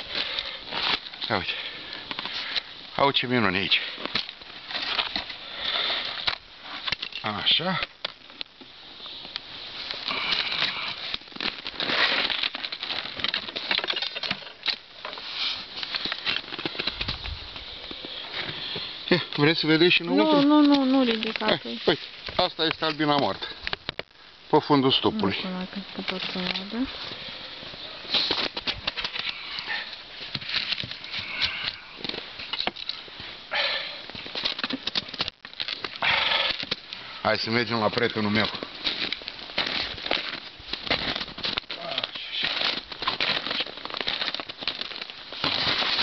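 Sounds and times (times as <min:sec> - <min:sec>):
snow crunching and scraping: 0:09.1 - 0:23.4, 0:24.8 - 0:34.5, 0:37.1 - 0:46.0.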